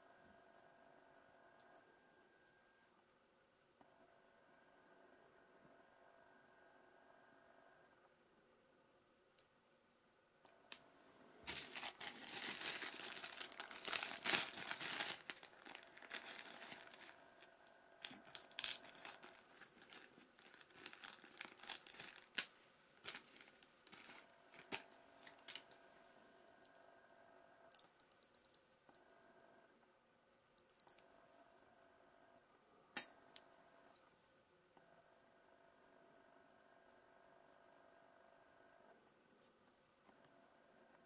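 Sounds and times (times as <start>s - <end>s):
plastic bag crinkling: 11.4s - 25.8s.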